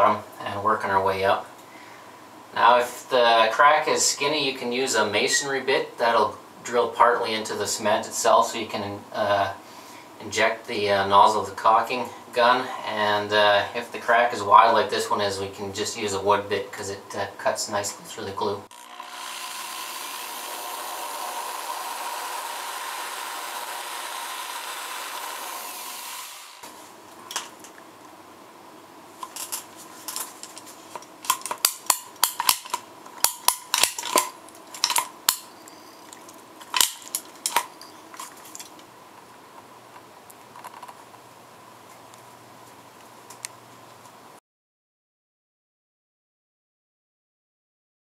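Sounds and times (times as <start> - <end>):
power drill boring: 18.7 - 26.7.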